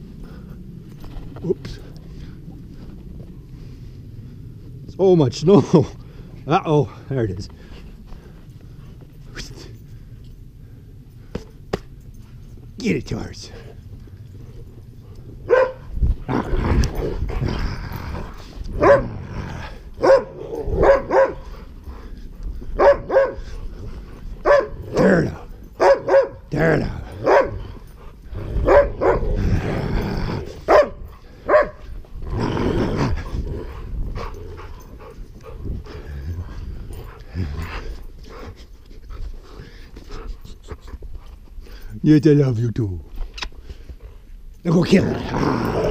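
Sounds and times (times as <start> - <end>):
dogs growling: 13.6 - 41.8, 43.7 - 45.9
dogs barking: 15.4 - 16.0, 18.7 - 19.3, 20.0 - 21.7, 22.8 - 23.6, 24.4 - 29.6, 30.6 - 31.9.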